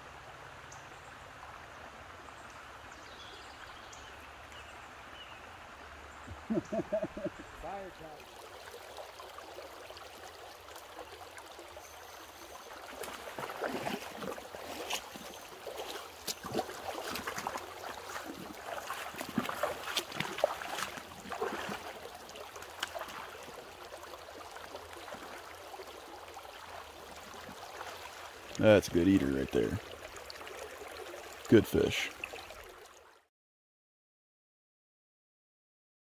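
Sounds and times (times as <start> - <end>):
creek water running: 0.0 - 33.3
fish splashing at surface: 12.9 - 23.4.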